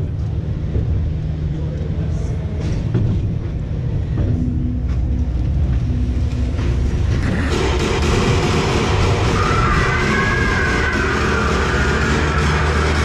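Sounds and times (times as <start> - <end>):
ride car rumbling on track: 0.0 - 13.0
loud ride music: 3.7 - 13.0.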